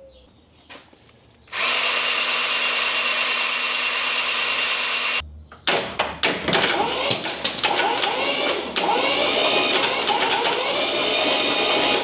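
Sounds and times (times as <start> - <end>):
cordless drill spinning: 1.5 - 5.2.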